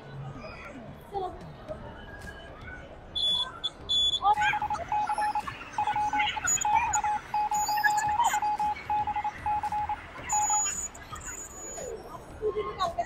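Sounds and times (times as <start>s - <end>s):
electric buzzer beeping: 4.9s - 11.7s.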